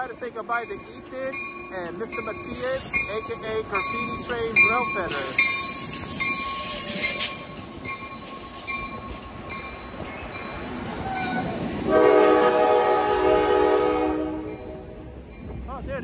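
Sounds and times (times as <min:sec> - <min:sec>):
train cars rumbling past: 0:00.0 - 0:16.0
wheel squeal: 0:05.4 - 0:09.2, 0:14.6 - 0:16.0
train air horn blast: 0:11.3 - 0:14.5.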